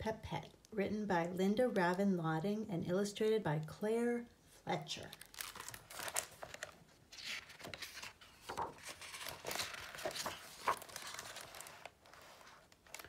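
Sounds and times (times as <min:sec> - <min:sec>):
book pages turning: 0:05.1 - 0:13.0.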